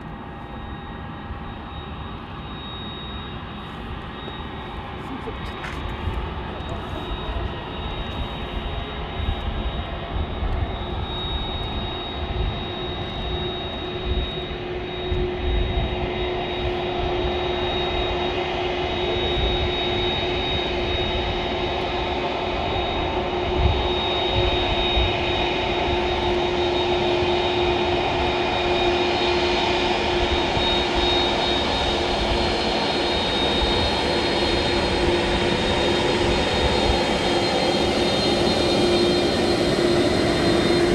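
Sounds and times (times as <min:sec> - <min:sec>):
jet engines whining: 0:00.0 - 0:40.9
wind rumble on microphone: 0:23.2 - 0:26.3.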